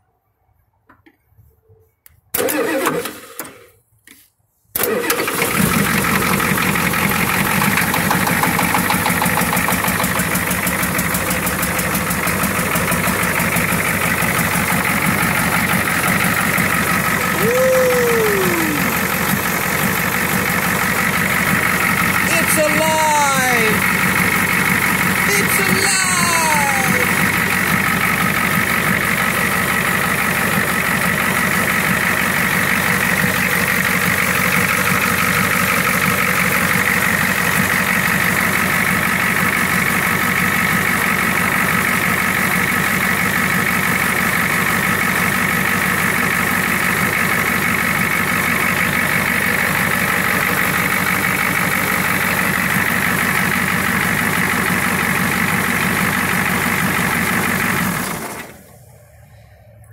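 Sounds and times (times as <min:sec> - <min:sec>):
diesel engine idling: 0:04.8 - 0:59.9.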